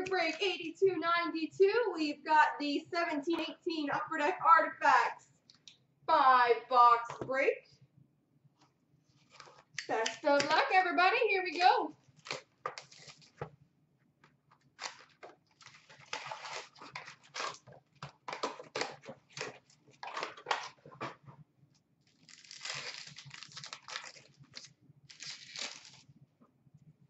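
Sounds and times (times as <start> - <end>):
card packs tearing open: 11.4 - 13.4, 14.6 - 20.9, 22.1 - 26.1
wrappers crinkling: 11.4 - 13.4, 14.5 - 21.1, 22.0 - 26.1.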